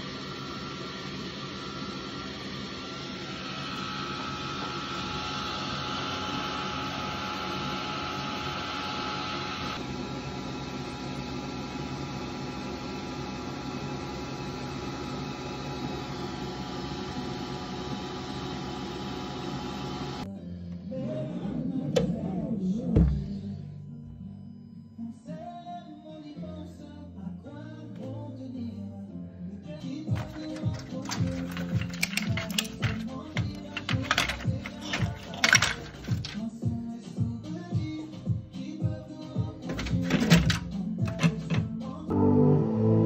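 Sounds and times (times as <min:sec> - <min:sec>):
laser engraver humming and whirring: 0:00.0 - 0:20.2.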